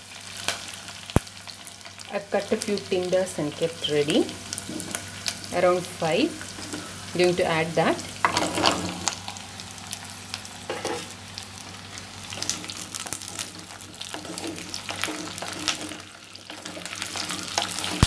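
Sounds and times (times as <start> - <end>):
vegetables sizzling in oil: 0.0 - 18.0
oil crackles: 11.4 - 18.0
wooden spatula stirring: 12.3 - 18.0.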